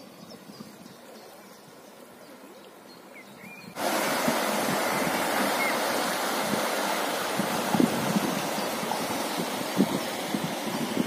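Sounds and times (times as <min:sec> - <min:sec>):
river rushing over riffle: 0:03.8 - 0:11.0.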